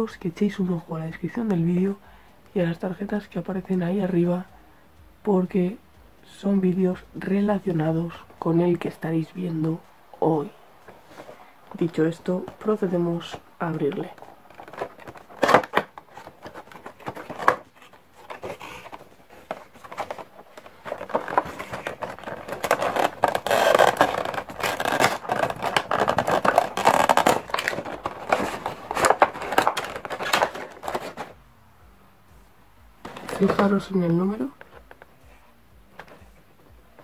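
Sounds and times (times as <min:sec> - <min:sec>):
cardboard box being handled: 0:10.8 - 0:31.4, 0:33.0 - 0:37.0
plastic tray scraping and crinkling: 0:10.8 - 0:31.4, 0:33.0 - 0:35.1.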